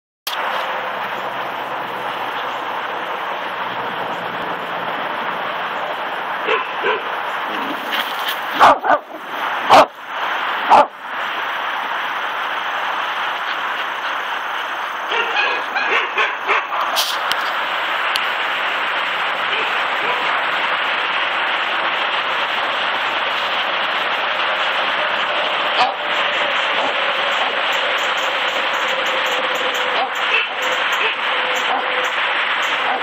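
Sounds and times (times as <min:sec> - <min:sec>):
dog barking: 0:06.4 - 0:07.1, 0:08.6 - 0:09.1, 0:09.7 - 0:09.9, 0:10.7 - 0:10.9, 0:15.1 - 0:17.0, 0:25.8 - 0:26.0, 0:30.0 - 0:32.0, 0:32.8 - 0:33.0
dog yipping: 0:06.5 - 0:07.0, 0:08.6 - 0:09.0, 0:15.1 - 0:16.8.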